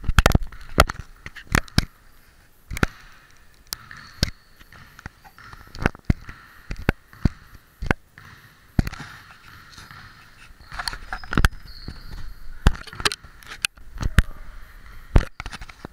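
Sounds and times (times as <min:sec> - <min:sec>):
high squeak: 0:10.6 - 0:12.6.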